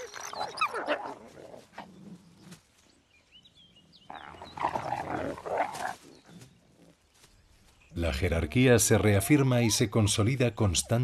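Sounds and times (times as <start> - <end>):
wolves growling: 3.9 - 7.0.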